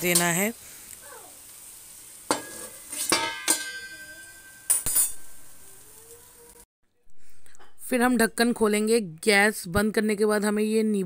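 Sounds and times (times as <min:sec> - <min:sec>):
metal lid clinking on metal pot: 0:02.3 - 0:05.4.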